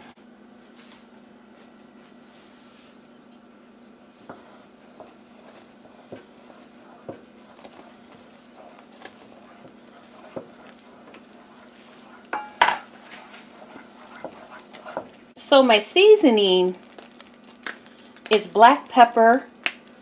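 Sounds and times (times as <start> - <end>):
steady low hum: 0.0 - 19.9
wooden spoon stirring thick mush: 3.7 - 20.0
spoon knocking against pot: 12.3 - 12.9.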